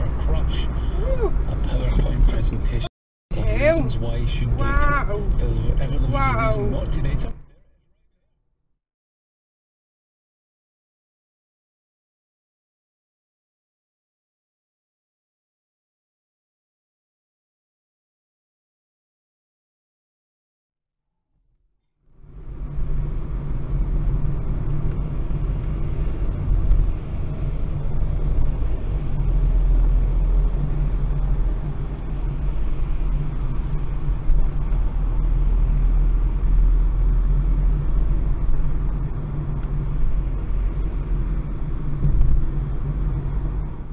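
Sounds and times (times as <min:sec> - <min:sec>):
car cabin road rumble: 0:00.0 - 0:07.8, 0:22.1 - 0:43.9.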